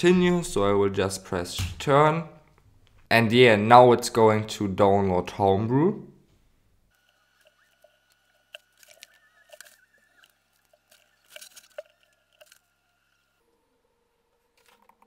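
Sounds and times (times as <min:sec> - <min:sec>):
small clicks and rustles: 0:06.9 - 0:12.7.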